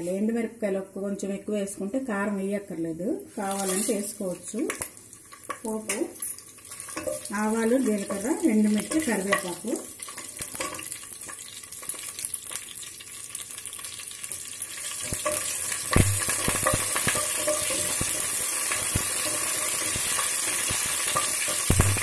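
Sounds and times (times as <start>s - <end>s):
spices sizzling in hot oil: 3.2s - 22.0s
spatula stirring in pan: 5.2s - 12.2s, 14.2s - 22.0s.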